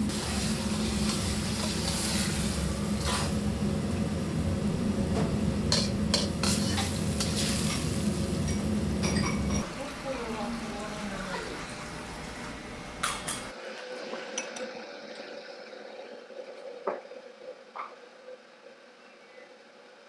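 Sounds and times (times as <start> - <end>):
range hum: 0.0 - 14.0
wok sizzling: 0.0 - 16.0.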